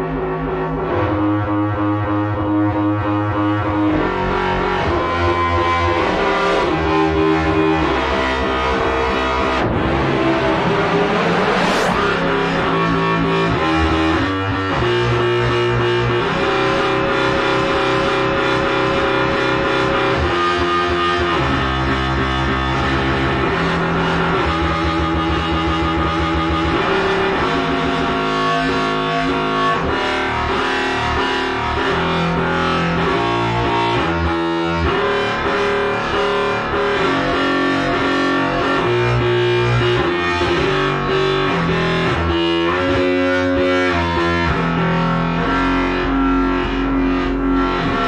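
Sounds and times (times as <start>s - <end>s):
sustained synth notes: 0.0s - 22.8s
synth bass note: 6.3s - 17.8s.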